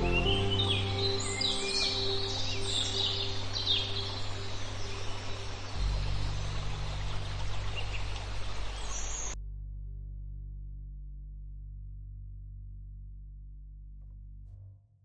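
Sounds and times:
birds chirping: 0.0 - 9.4
ambient music drone: 0.0 - 13.5.

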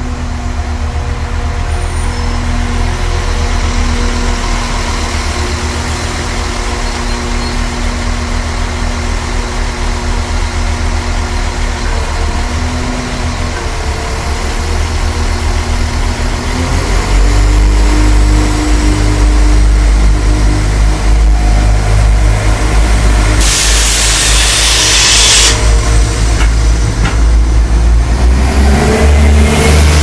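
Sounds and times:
train diesel engines droning: 0.0 - 30.0
loud hiss: 23.3 - 26.0.

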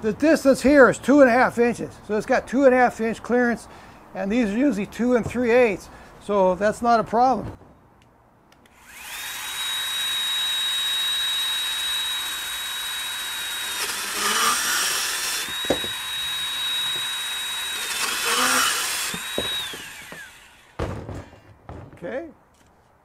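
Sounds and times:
band saw cutting plastic pipe: 8.7 - 21.4.

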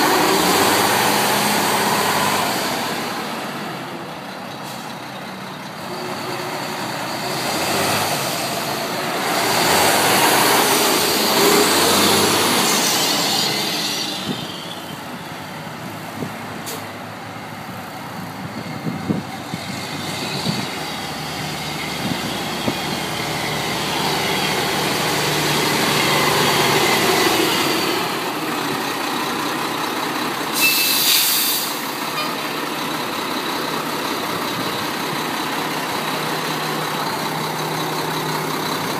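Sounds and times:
diesel truck engine running: 0.0 - 38.9
short air hiss: 30.6 - 31.8.

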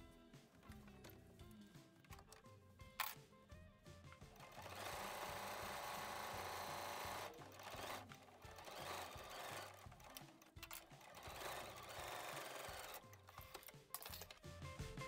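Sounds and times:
soft background music: 0.0 - 15.0
sewing machine stitching: 4.3 - 14.4.

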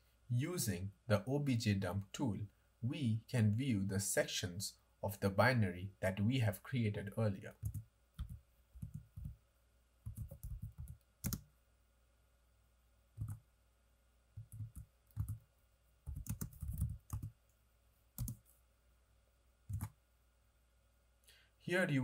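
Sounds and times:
computer keyboard typing: 7.6 - 9.4, 10.0 - 11.5, 13.2 - 13.4, 14.4 - 15.4, 16.0 - 17.3, 18.2 - 18.4, 19.7 - 20.0.

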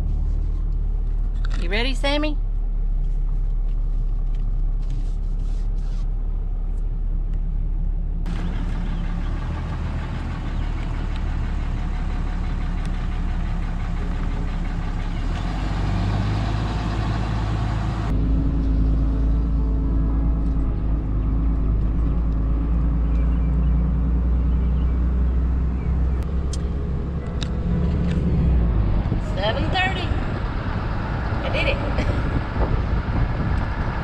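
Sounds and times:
pickup truck engine running: 6.2 - 34.0
tyre and wind noise: 27.8 - 34.0.

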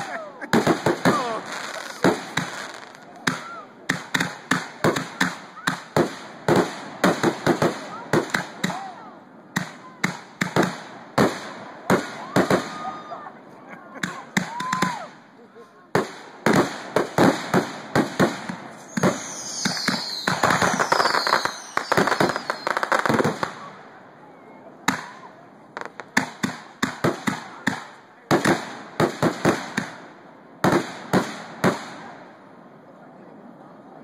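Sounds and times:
fireworks bursting: 0.0 - 13.2, 14.0 - 15.2, 15.9 - 24.0, 24.8 - 32.4
fireworks crackling: 0.0 - 13.3, 13.9 - 15.3, 15.9 - 24.1, 24.8 - 32.3
falling firework whistles: 18.8 - 23.0.

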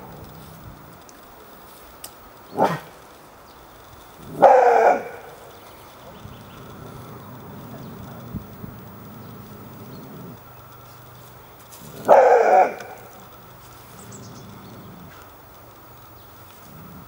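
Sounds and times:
dog barking: 2.6 - 2.9, 4.3 - 5.4, 11.9 - 13.2.

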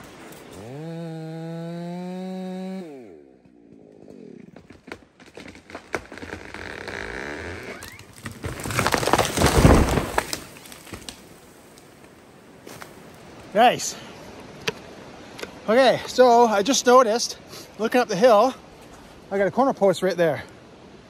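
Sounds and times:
chainsaw at full throttle: 0.5 - 3.2
wood knocking and cracking: 3.4 - 11.2.

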